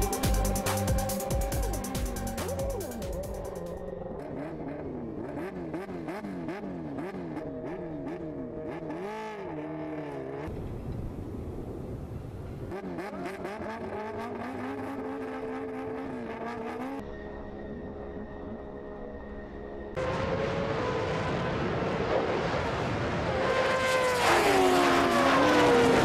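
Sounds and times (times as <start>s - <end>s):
racing engine revving: 4.1s - 10.5s, 12.7s - 17.0s, 20.0s - 26.0s.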